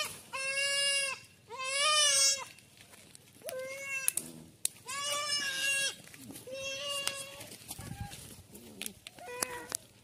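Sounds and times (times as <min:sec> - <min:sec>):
baby goat bleating: 0:00.0 - 0:02.6, 0:03.4 - 0:08.2, 0:09.2 - 0:09.8.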